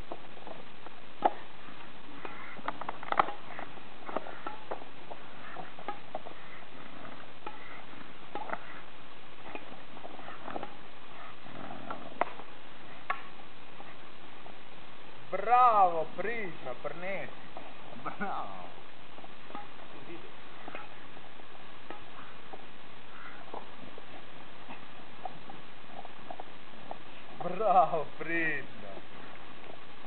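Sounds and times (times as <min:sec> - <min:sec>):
background hiss: 0:00.0 - 0:30.0
dogs breathing: 0:01.3 - 0:14.0.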